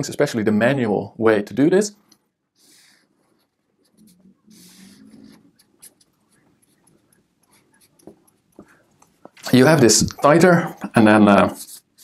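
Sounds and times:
marker pen scratching on paper: 2.0 - 9.4, 11.4 - 12.0.

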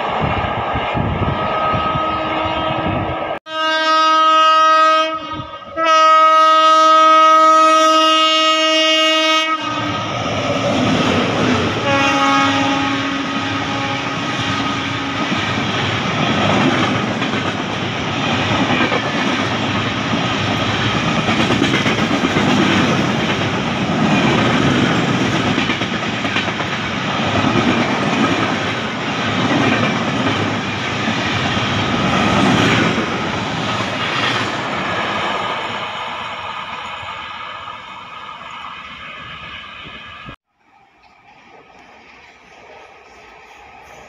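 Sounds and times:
train wheels clattering on rails: 13.3 - 35.7.

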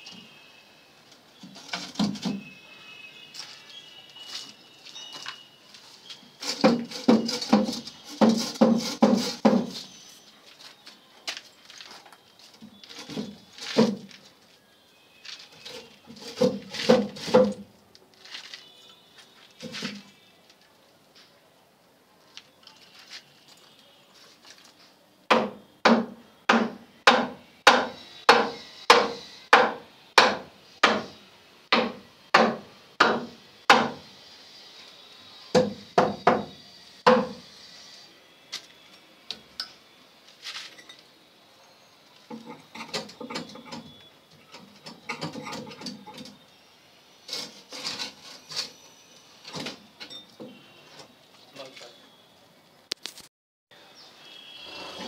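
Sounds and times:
wooden box scraping against brick: 6.4 - 10.0, 15.6 - 17.6, 47.3 - 48.8
sharp knocks on wooden box: 6.6 - 9.8, 16.4 - 17.6, 25.3 - 31.1, 31.7 - 34.0, 35.6 - 37.4.

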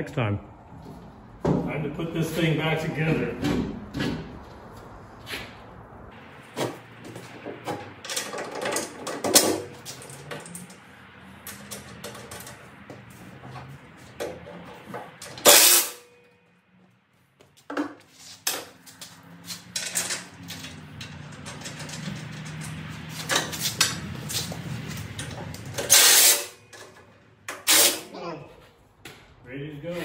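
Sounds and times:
metal knocks and clanks: 3.1 - 4.4.

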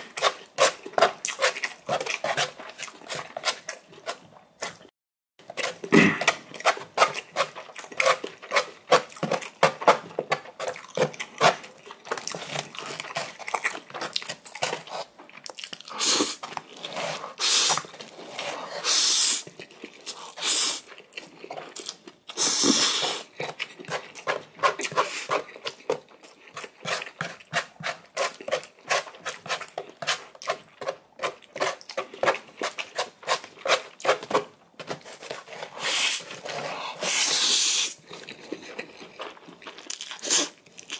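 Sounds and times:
wet chewing: 5.5 - 16.8, 19.4 - 34.4, 37.9 - 40.9
slurping noodles: 22.3 - 25.5, 35.6 - 38.0.

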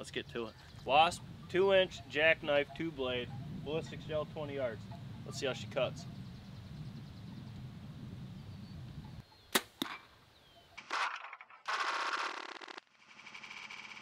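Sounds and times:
low wind rumble: 0.0 - 9.2.

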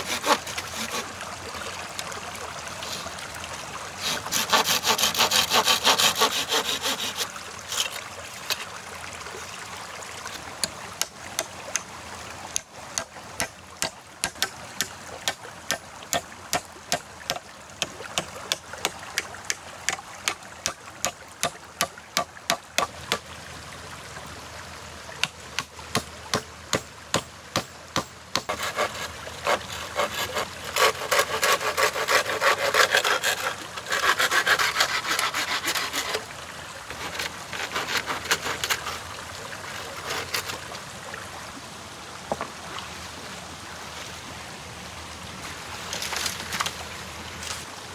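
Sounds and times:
hand saw cutting wood: 0.0 - 1.1, 4.0 - 8.7, 25.9 - 36.3, 36.9 - 39.0, 39.7 - 40.6
sharp knocks on wood: 25.6 - 28.5.

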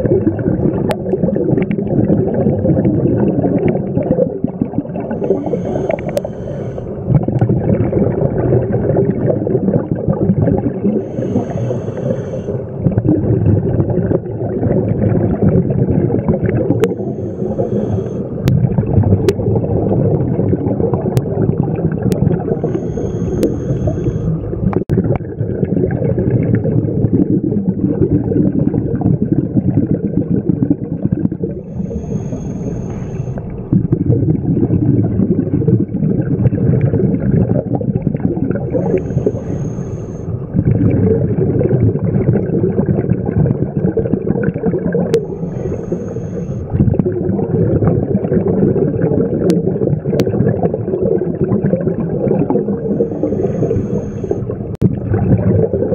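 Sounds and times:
rumbling bubble exhalations: 0.0 - 55.9
regulator hissing inhale: 5.2 - 7.1, 10.9 - 12.8, 16.7 - 18.4, 22.5 - 24.7, 31.6 - 33.6, 38.8 - 40.4, 45.2 - 46.7, 52.9 - 54.6.

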